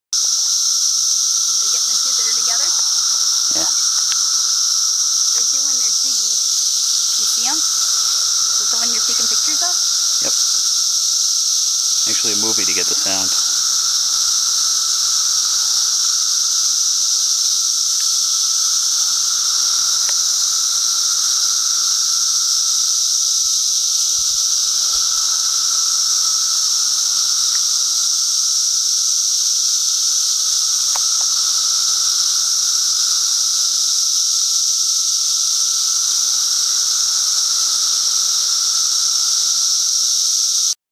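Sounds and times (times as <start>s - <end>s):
cicadas droning: 0.1s - 40.8s.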